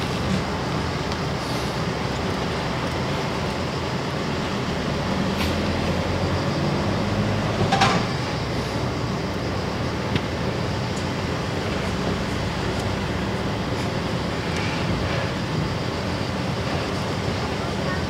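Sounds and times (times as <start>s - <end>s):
car engine and tyre hum: 0.0s - 7.8s.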